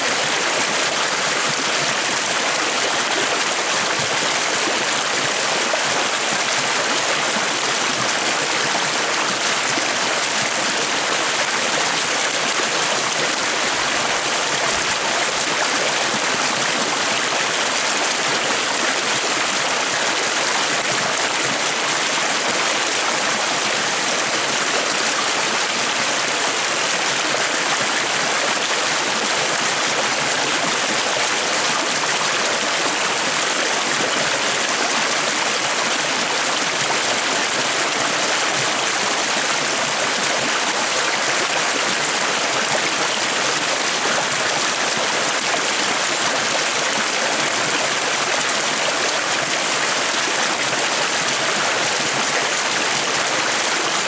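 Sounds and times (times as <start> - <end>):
stream rushing over stones: 0.0 - 54.0.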